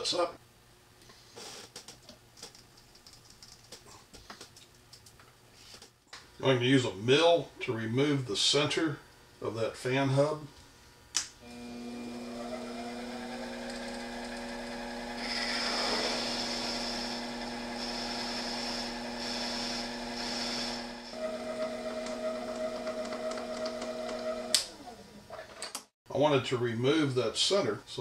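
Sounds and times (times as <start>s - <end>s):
lathe motor humming: 11.5s - 25.0s.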